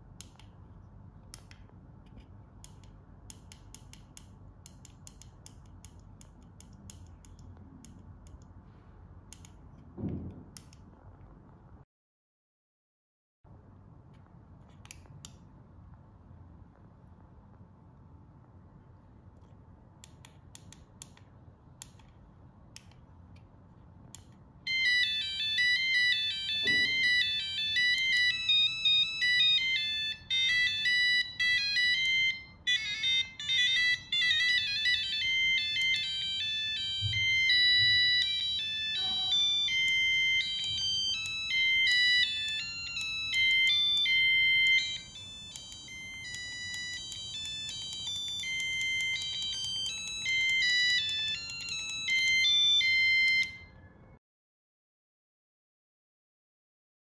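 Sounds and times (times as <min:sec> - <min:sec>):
electronic alarm melodies: 0:24.7 - 0:53.8.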